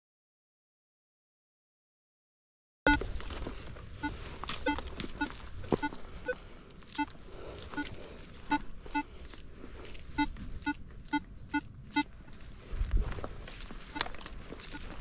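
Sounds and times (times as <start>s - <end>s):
metal detector beeping: 2.9s - 3.2s, 4.0s - 6.4s, 7.0s - 9.1s, 10.0s - 12.1s, 13.8s - 15.0s.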